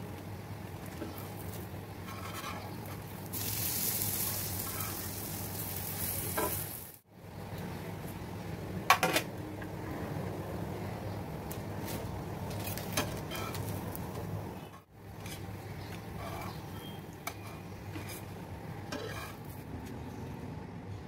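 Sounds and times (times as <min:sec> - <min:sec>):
bread sizzling on a griddle: 0:00.0 - 0:07.1.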